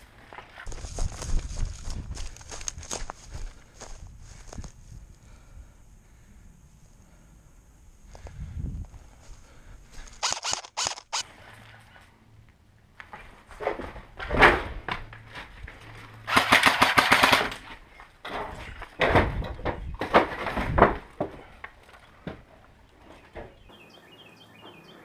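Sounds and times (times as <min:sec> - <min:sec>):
rustling through brush: 0:00.0 - 0:05.1
airsoft gun full-auto burst: 0:10.2 - 0:11.2, 0:16.3 - 0:17.5.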